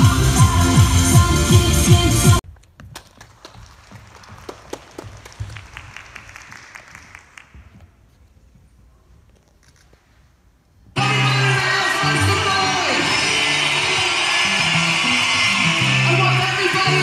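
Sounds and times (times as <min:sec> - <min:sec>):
audience applauding: 0:03.0 - 0:07.8, 0:11.0 - 0:17.0.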